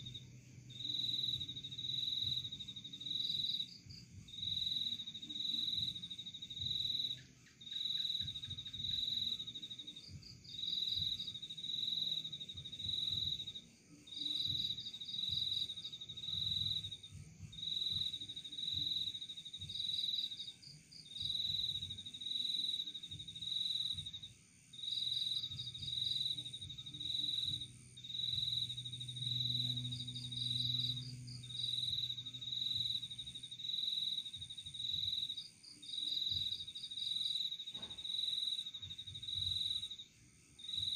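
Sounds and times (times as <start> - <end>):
crickets chirping: 0.0 - 40.9
low hum: 25.9 - 33.6.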